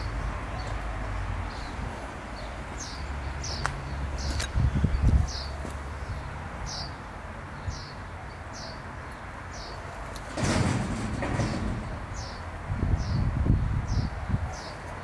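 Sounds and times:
loud scraping rustle: 0:10.1 - 0:12.4.

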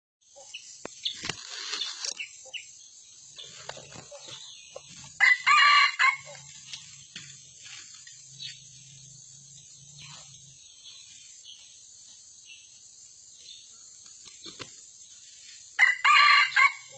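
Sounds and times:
rustling in dry leaves: 0:00.4 - 0:02.6, 0:03.4 - 0:09.0, 0:14.0 - 0:16.9
rooster crowing: 0:05.2 - 0:06.5, 0:15.8 - 0:16.9.

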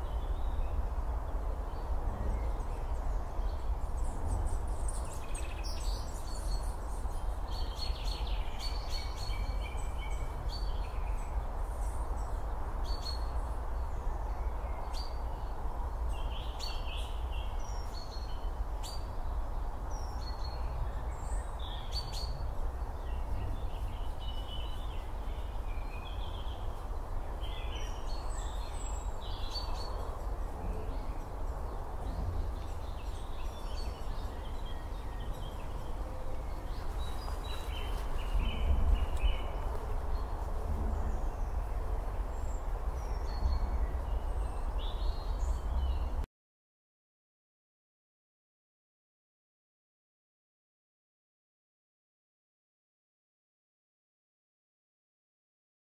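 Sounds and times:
steady low background noise: 0:00.0 - 0:46.2
birds calling and chirping: 0:16.1 - 0:46.2.

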